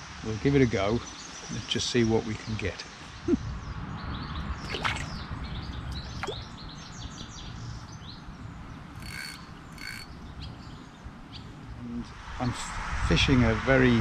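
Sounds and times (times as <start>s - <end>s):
small birds chirping: 0.2s - 12.5s
steady low rumble: 3.2s - 14.0s
short harsh bird calls: 8.9s - 10.6s.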